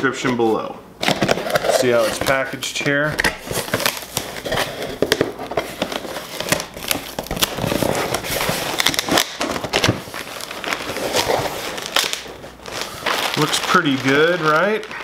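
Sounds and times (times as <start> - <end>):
plastic bag crinkling: 3.4 - 15.0.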